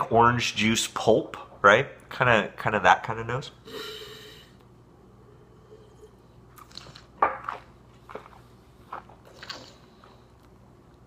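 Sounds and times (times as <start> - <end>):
wet mouth smacks and slurps: 6.5 - 9.9.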